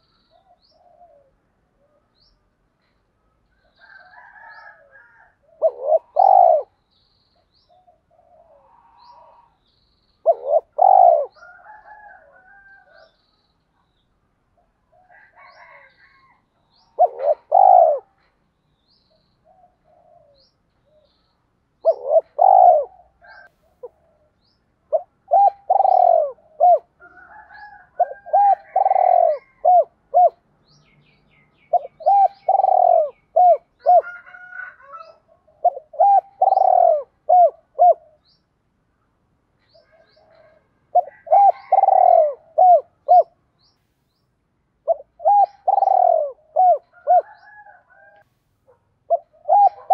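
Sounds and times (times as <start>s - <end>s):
dove cooing: 0.0s - 1.9s, 3.7s - 6.8s, 7.7s - 9.6s, 10.2s - 13.2s, 14.6s - 18.3s, 19.4s - 21.2s, 21.8s - 30.4s, 31.6s - 38.3s, 39.7s - 43.4s, 44.8s - 49.9s.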